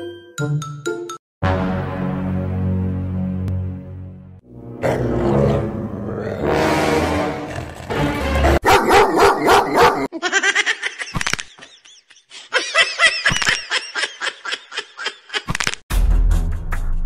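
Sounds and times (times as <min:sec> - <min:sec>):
music: 0:00.0 - 0:08.6, 0:15.9 - 0:17.0
dog barking rapidly: 0:08.5 - 0:10.1.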